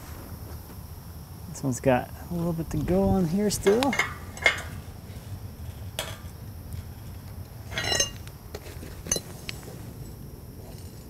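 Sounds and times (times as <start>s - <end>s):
wrench clinking on metal: 3.5s - 4.9s, 7.7s - 8.3s.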